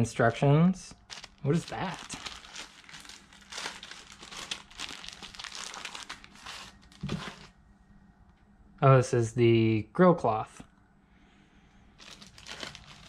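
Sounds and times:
plastic bag crinkling: 1.0 - 7.5, 12.0 - 13.0.

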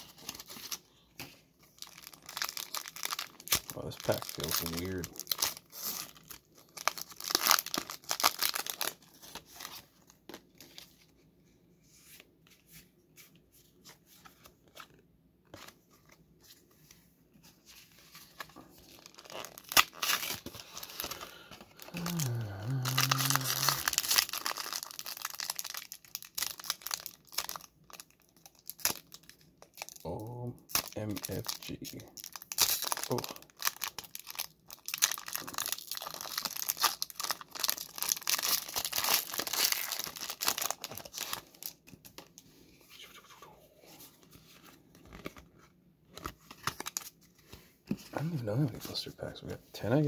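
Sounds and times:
foil wrapper tearing and crinkling: 1.8 - 9.8, 18.4 - 42.3, 46.2 - 47.1
person humming: 21.9 - 24.0.

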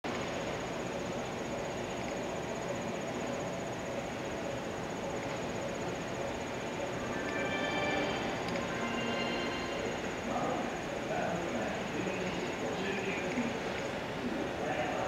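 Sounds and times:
outdoor station background noise: 0.0 - 15.0
faint high pulsing tone: 2.4 - 13.2.

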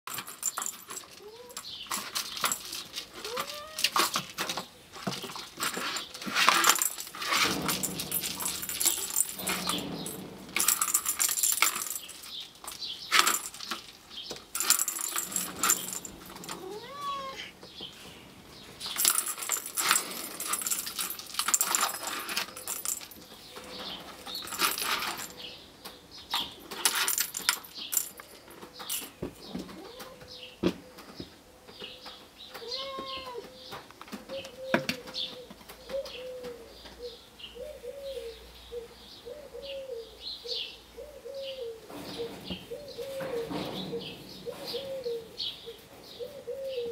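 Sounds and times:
ball rattling around plastic track: 1.9 - 16.6, 18.9 - 23.3
kitten mewing: 16.6 - 17.6.

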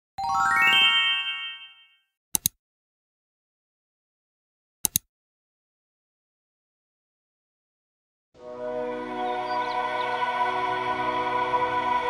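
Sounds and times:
bright rising chime: 0.2 - 2.0
double clicks: 2.3 - 2.6, 4.8 - 5.1.

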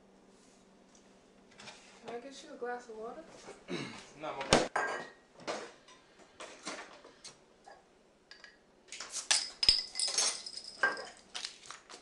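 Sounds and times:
glassware and dishes clinking: 4.8 - 5.7, 9.3 - 11.2.

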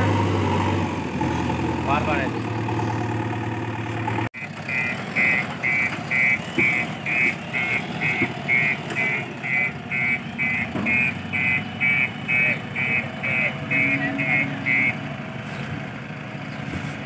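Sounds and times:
diesel engine running: 0.0 - 17.0
reversing alarm beeping: 4.4 - 15.1.

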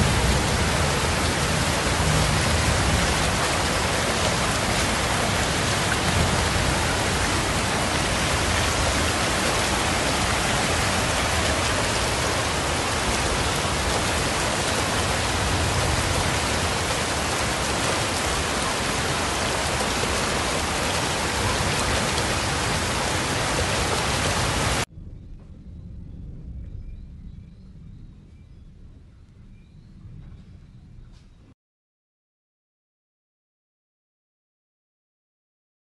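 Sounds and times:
floodwater rushing: 0.0 - 24.9
heavy rain pouring: 0.0 - 24.9.

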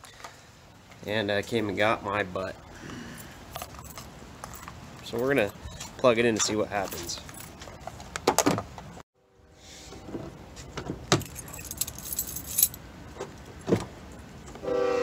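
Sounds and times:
keys jangling: 3.5 - 4.7, 11.2 - 12.8.

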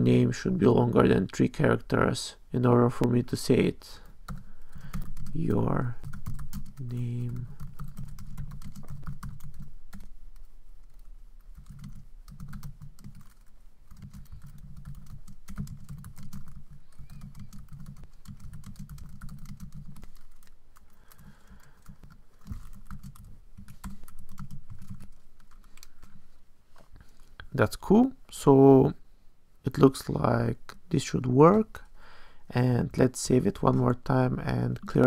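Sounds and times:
typing on computer keyboard: 4.3 - 5.4, 6.0 - 10.1, 10.9 - 26.1.

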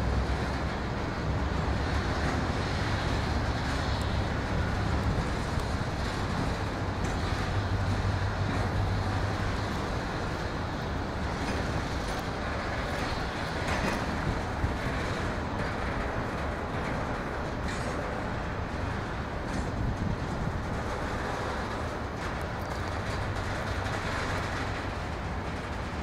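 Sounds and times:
diesel locomotive engine rumbling: 0.0 - 26.0.

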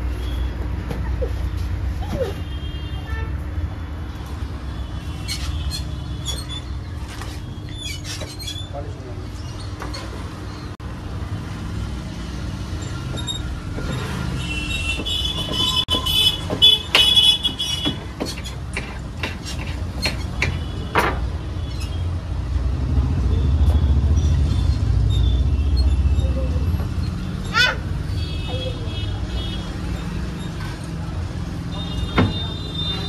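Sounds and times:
vehicle engines running: 0.0 - 33.0
sharp clicks and knocks: 14.8 - 21.3.

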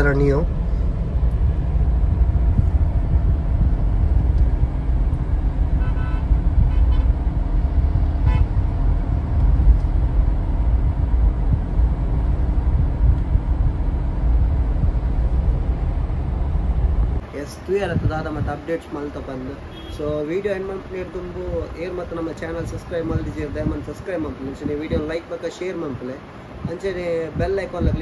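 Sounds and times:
car engine and road noise: 0.0 - 28.0
car horn toot: 5.8 - 7.2, 8.2 - 8.6, 19.7 - 20.0.

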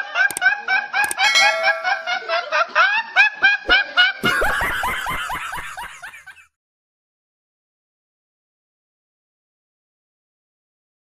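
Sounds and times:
high-pitched laughter bursts: 0.0 - 6.3
man laughing: 0.1 - 6.5.

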